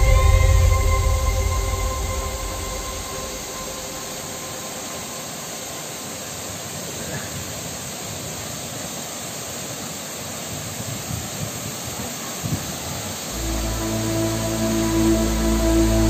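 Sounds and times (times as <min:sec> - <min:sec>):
waterfalls rushing into a pool: 0:03.4 - 0:16.0.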